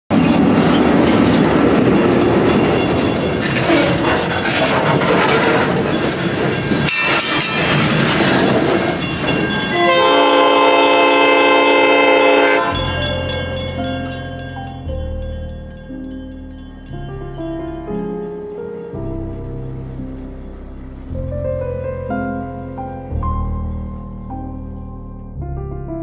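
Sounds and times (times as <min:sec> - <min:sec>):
train rolling past: 0:00.1 - 0:25.4
locomotive air horn chord: 0:09.7 - 0:14.3.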